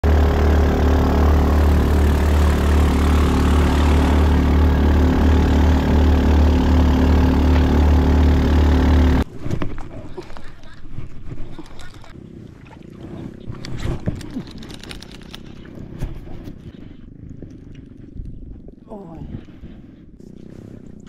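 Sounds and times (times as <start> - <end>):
boat engine droning: 0.0 - 9.3, 12.1 - 21.0
spray rushing off hull: 0.1 - 8.4.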